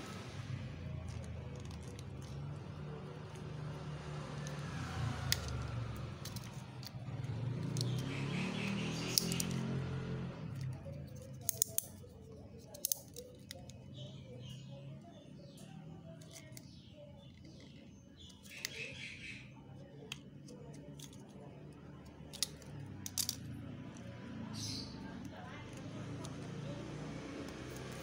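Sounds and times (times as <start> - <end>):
cutting tool snipping capsules: 8.7 - 9.7, 10.5 - 12.0.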